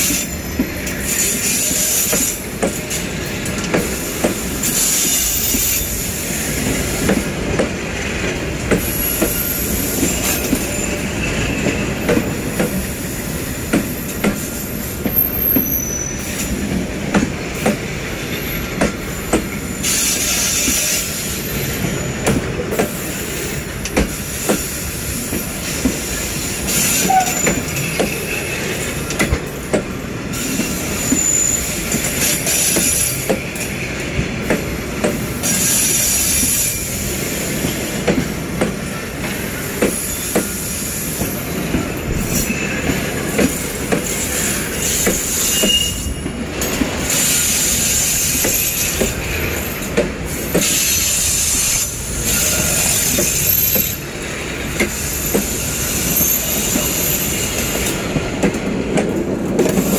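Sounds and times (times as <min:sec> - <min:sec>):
train rumble: 0:00.0 - 0:59.9
high wheel squeal: 0:08.9 - 0:13.3, 0:13.9 - 0:16.6, 0:26.4 - 0:29.0, 0:30.3 - 0:34.0, 0:39.4 - 0:49.8, 0:50.4 - 0:58.0.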